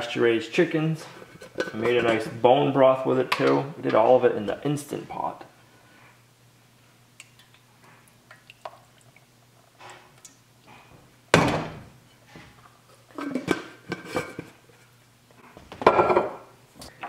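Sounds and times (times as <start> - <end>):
liquid trickling into a saucepan: 8.2 - 10.3.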